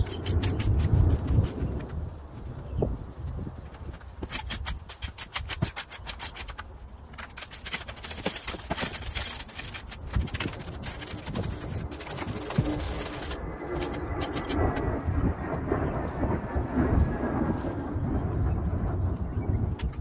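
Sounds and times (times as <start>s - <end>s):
rake scraping dry soil: 0.0s - 2.0s, 3.8s - 15.0s, 17.3s - 18.1s.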